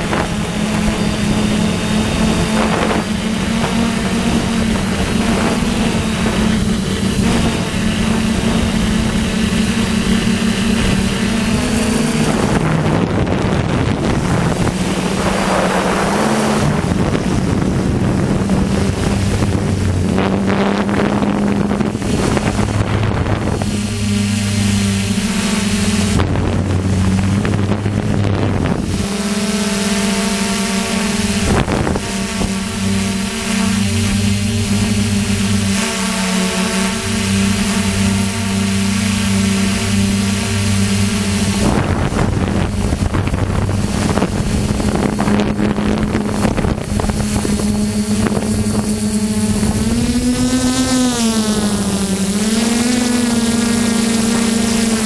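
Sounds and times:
wind rushing over microphone: 0:00.0 - 0:35.8, 0:36.4 - 0:55.0
drone propellers buzzing: 0:00.0 - 0:55.0.

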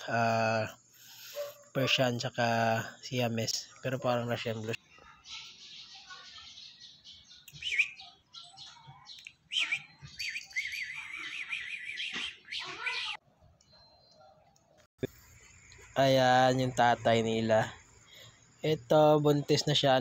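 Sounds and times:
birds chirping and singing: 0:00.0 - 0:20.0
warbling bird trill: 0:09.4 - 0:14.1.

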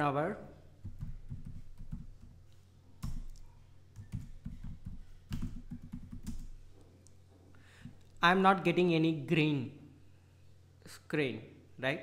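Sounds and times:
keyboard typing: 0:00.8 - 0:02.4, 0:03.0 - 0:06.7.

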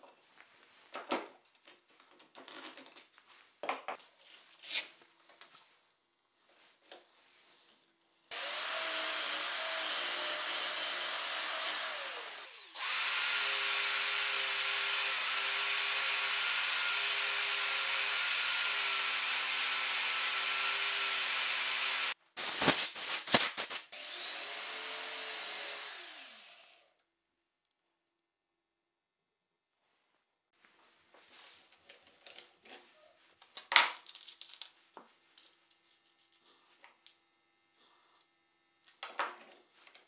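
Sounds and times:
electric drill whining: 0:08.3 - 0:22.2, 0:24.0 - 0:26.9.

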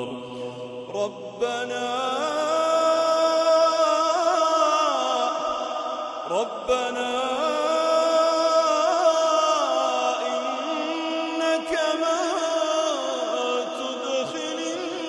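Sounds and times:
solo voice reciting melodically: 0:00.0 - 0:15.0
person breathing: 0:00.2 - 0:00.8.

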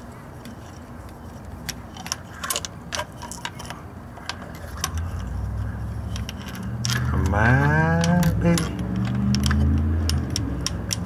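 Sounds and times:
metal tool clinking and tapping: 0:06.0 - 0:11.0.

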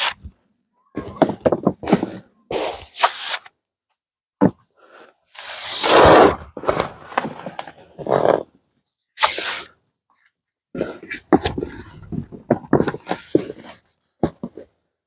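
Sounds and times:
cardboard rustling and scraping: 0:05.4 - 0:08.5, 0:10.8 - 0:14.8.

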